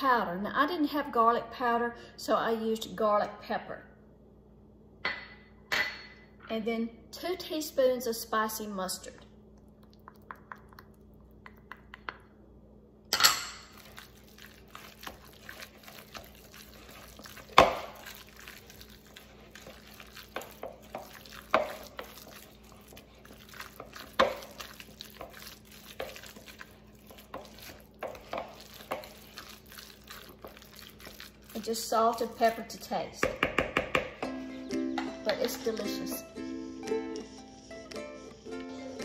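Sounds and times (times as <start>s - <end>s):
spoon stirring salad in bowl: 13.2s - 36.1s.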